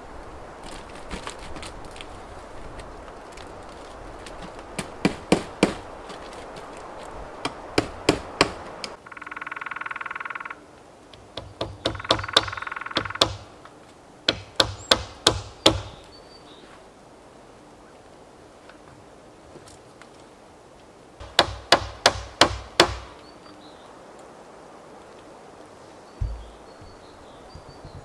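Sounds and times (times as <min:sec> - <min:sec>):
hand tool knocking on wood: 0:26.2 - 0:27.0.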